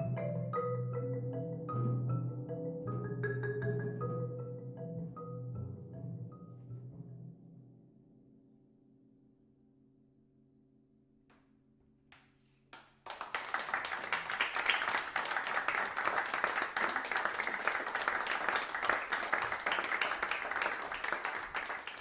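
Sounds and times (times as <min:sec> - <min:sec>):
audience applauding: 0:12.8 - 0:22.0.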